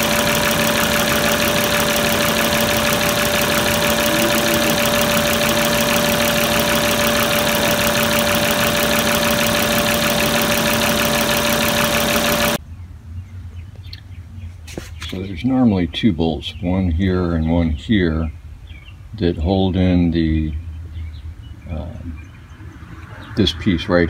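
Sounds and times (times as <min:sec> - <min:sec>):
car engine idling: 0:00.0 - 0:12.6
steady whine tones: 0:00.0 - 0:12.6, 0:21.7 - 0:24.0.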